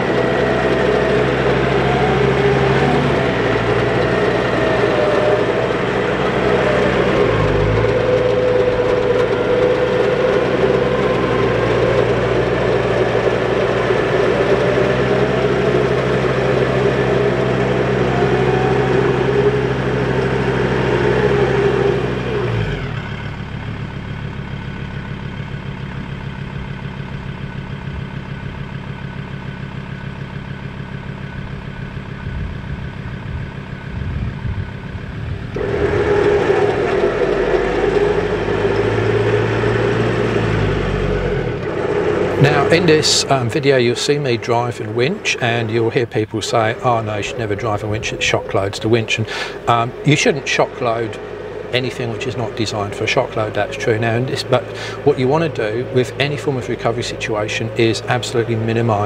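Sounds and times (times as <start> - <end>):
car engine idling: 0.0 - 59.0
winch whining under load: 0.0 - 59.0.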